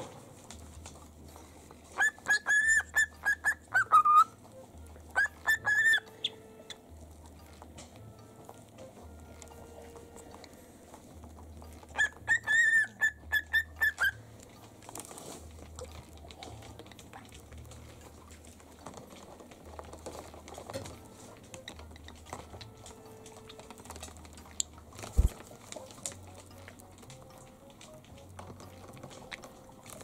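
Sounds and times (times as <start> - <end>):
parrot whistling high notes: 2.0 - 4.4, 5.1 - 6.8, 11.9 - 14.2.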